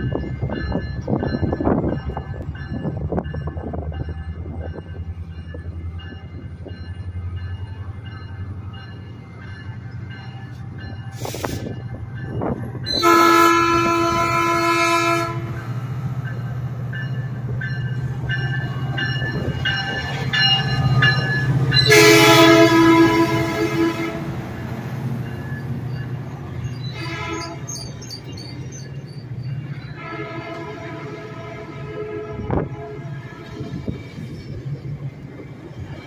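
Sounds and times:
diesel locomotive engine drone: 0:00.0 - 0:36.0
train horn blasts: 0:12.8 - 0:15.7, 0:21.8 - 0:24.4, 0:26.9 - 0:27.7, 0:29.9 - 0:34.0.

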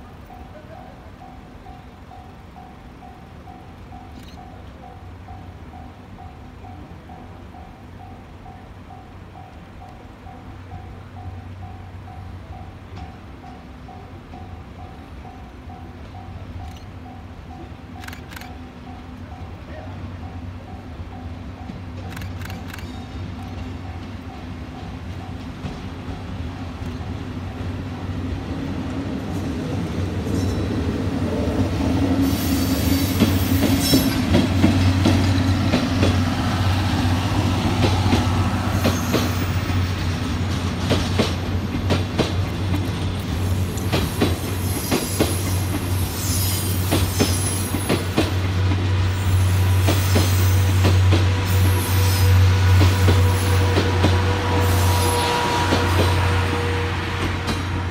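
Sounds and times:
train rumbling past: 0:00.0 - 0:57.9.

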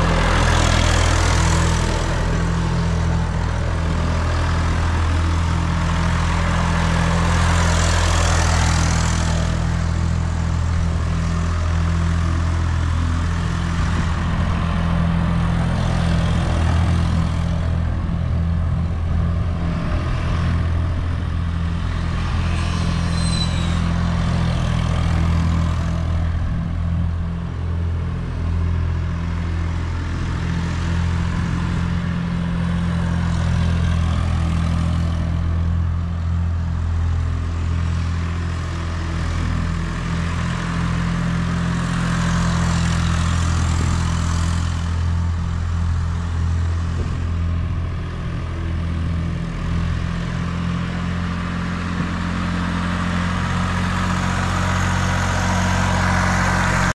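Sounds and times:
tractor engine running: 0:00.0 - 0:23.0, 0:23.7 - 0:56.9.

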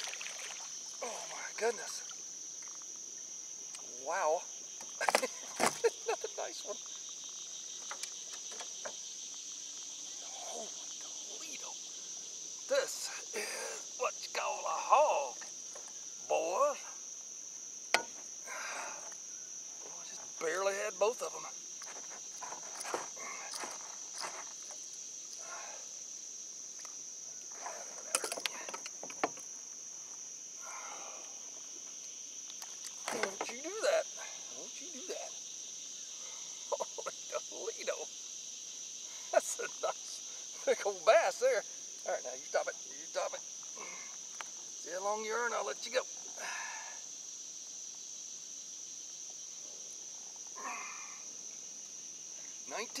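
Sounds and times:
insects droning: 0:00.0 - 0:53.0
clicks and rattles of landing net: 0:28.0 - 0:29.5, 0:32.7 - 0:33.6.

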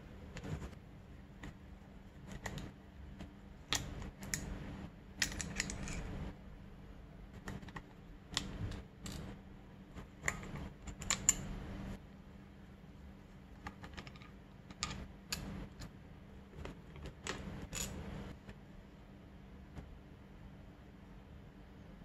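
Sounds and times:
metal parts clicking and scraping: 0:05.2 - 0:06.1.

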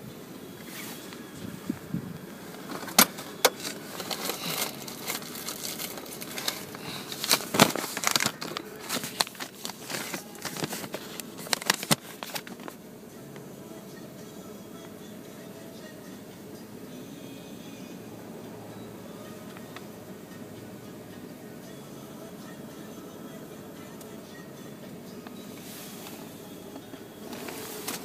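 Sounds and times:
steady background noise: 0:00.0 - 0:28.0
handling clicks taps and rustles: 0:02.5 - 0:12.8.

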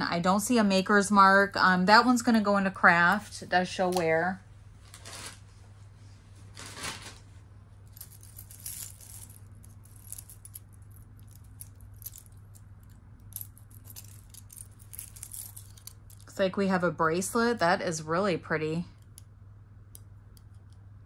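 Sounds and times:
steady low hum: 0:00.0 - 0:21.0
jewelry clicking and jingling: 0:07.9 - 0:16.3.

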